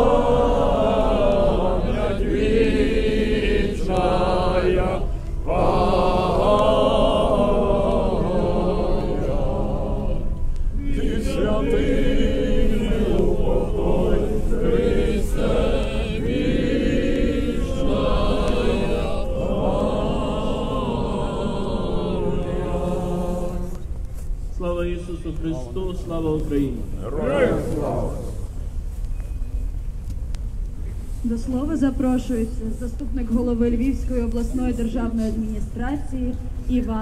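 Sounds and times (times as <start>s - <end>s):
crowd singing together: 0.0s - 24.0s, 27.0s - 28.6s.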